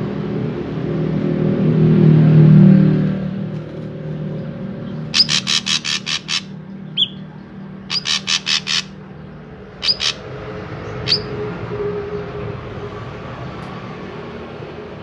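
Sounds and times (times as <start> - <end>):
bird calling sharp notes: 5.1 - 9.0, 9.8 - 10.3, 11.0 - 11.4.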